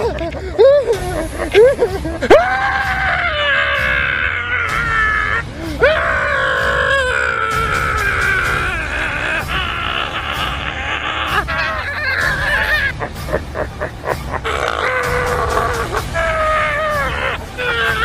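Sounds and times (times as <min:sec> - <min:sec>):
man screaming: 0:02.2 - 0:12.9.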